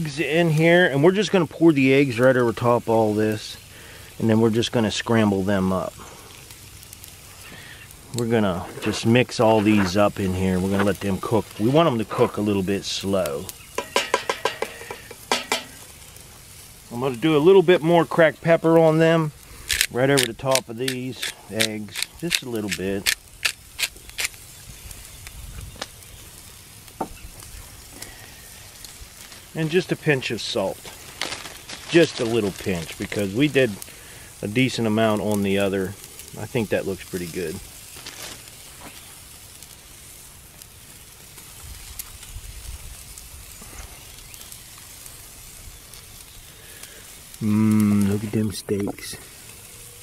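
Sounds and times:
food sizzling over coals: 0:00.0 - 0:50.0
sharp clicks: 0:19.7 - 0:24.4.

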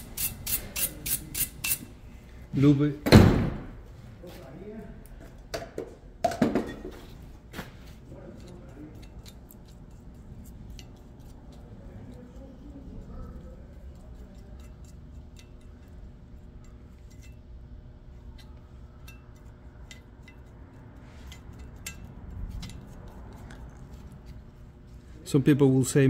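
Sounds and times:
heater humming: 0:06.8 - 0:26.0.

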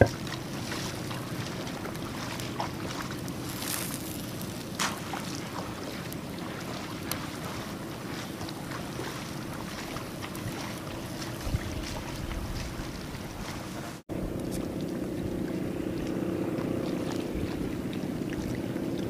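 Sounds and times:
campfire crackling: 0:00.0 - 0:11.8
engine drone: 0:00.0 - 0:19.0
sharp clicks from campfire: 0:03.2 - 0:05.2.

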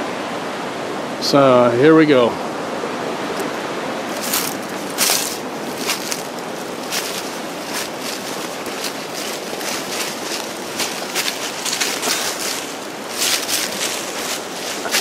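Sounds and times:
steady rushing noise: 0:02.3 - 0:15.0
brush and leaves swishing: 0:03.3 - 0:15.0
footsteps on overgrown slope: 0:04.1 - 0:15.0.

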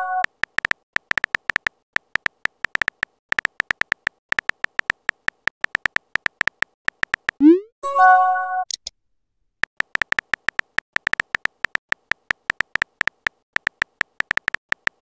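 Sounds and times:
phone keyboard tapping clicks: 0:00.2 - 0:07.4, 0:09.6 - 0:15.0.

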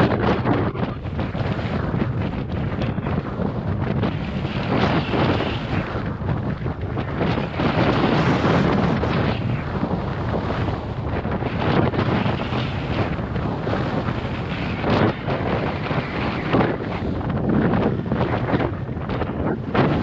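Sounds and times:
wind buffeting microphone: 0:00.0 - 0:20.0.

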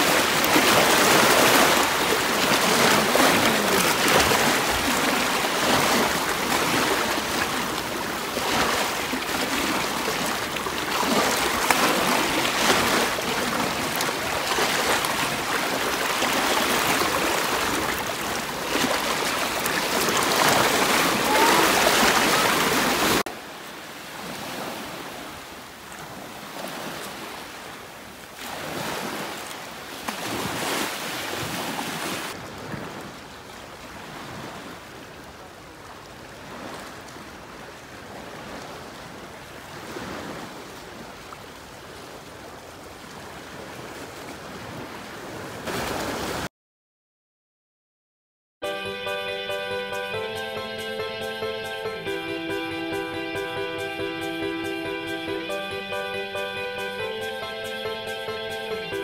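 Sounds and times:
waves splashing around rocks: 0:00.0 - 0:46.5.

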